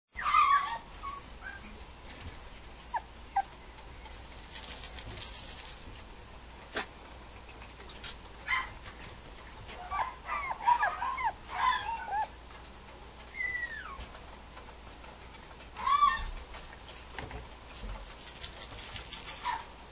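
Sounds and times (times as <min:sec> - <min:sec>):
puppy whimpering: 0:00.2 - 0:01.8, 0:02.4 - 0:03.5, 0:09.7 - 0:12.4, 0:13.3 - 0:14.1.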